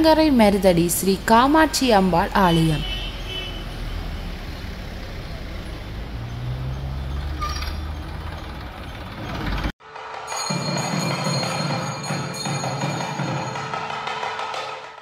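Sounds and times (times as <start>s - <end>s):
motorcycle and scooter engines passing: 0.0s - 9.7s.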